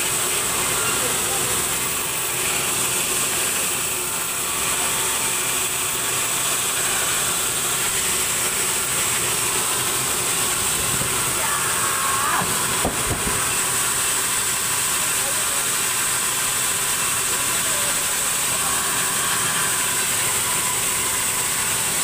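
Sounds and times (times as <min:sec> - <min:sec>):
sawmill machinery whining: 0:00.0 - 0:22.0.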